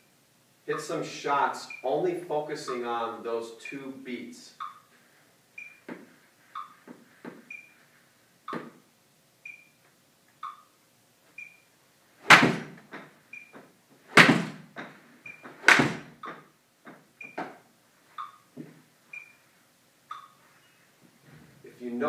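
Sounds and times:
metronome beeps: 0:04.6 - 0:04.9, 0:06.6 - 0:06.8
golf swing thuds: 0:12.2 - 0:17.6.

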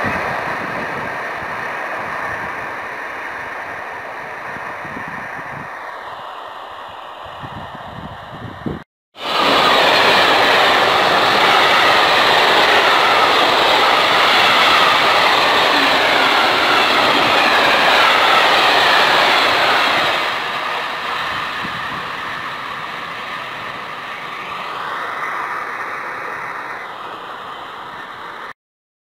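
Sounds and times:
freight train wheels on rails: 0:00.0 - 0:28.5.

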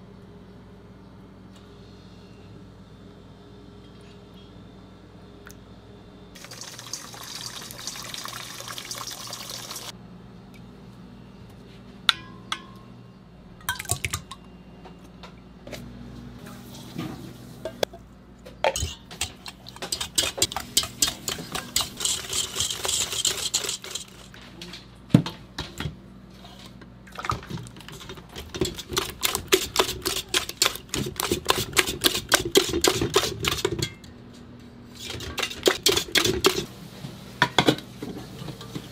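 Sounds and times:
pouring hiss: 0:06.4 - 0:09.9
whisk clicking against bowl: 0:18.8 - 0:24.2
whisk beating in metal bowl: 0:18.8 - 0:24.4, 0:27.9 - 0:33.8.

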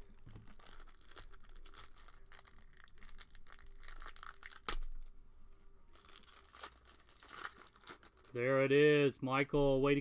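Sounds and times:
cellophane wrapper crinkling and tearing: 0:00.0 - 0:05.2, 0:05.9 - 0:08.7.

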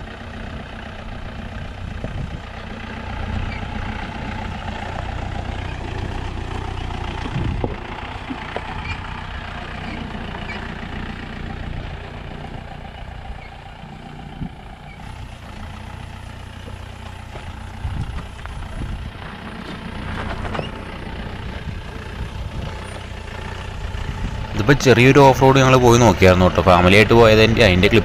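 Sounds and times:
diesel engine running low speed: 0:00.0 - 0:28.0.

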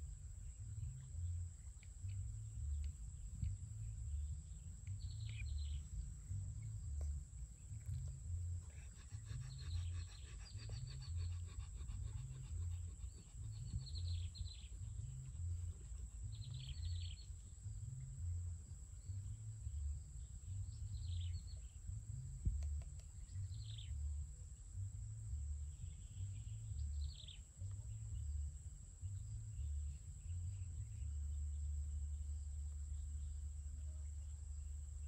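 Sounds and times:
high insect-like whine: 0:00.0 - 0:35.0
steady low rumble: 0:00.0 - 0:35.0
birds chirping: 0:04.1 - 0:17.4.

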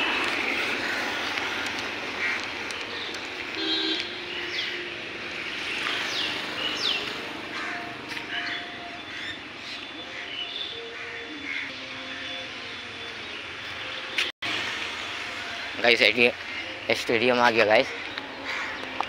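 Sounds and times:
steady traffic noise: 0:00.0 - 0:19.0
birds whistling: 0:00.4 - 0:14.3
vehicle horn toot: 0:03.5 - 0:04.7.

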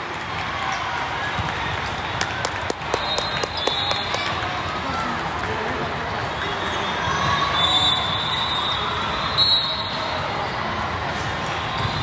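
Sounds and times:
many voices in a hall: 0:00.0 - 0:12.0.

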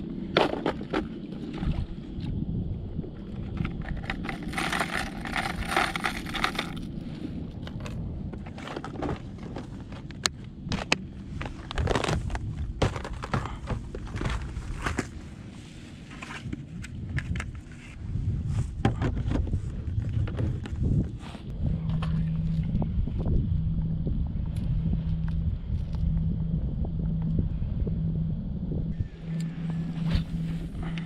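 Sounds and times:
steady low rumble: 0:00.0 - 0:31.0
rattling scrape: 0:03.4 - 0:06.9
plastic lures clicking and rattling: 0:03.6 - 0:06.9.

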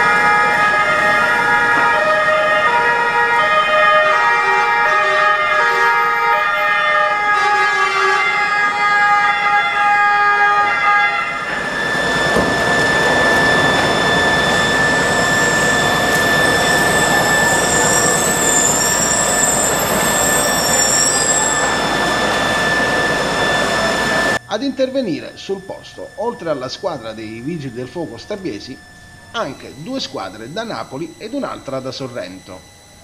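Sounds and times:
fire engine engine running: 0:00.0 - 0:33.0
two-tone emergency sirens: 0:00.0 - 0:33.0
thin steady high tone: 0:11.4 - 0:33.0.

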